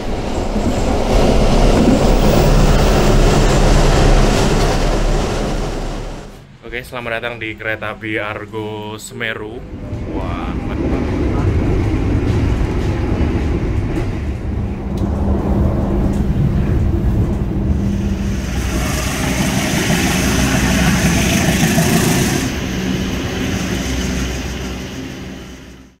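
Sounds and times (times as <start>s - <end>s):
train rumbling on track: 0.0s - 26.0s
hiss: 17.8s - 25.8s.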